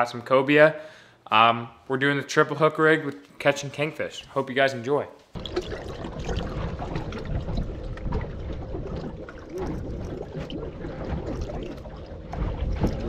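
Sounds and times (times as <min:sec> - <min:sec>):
water splashing and trickling: 0:05.4 - 0:13.0.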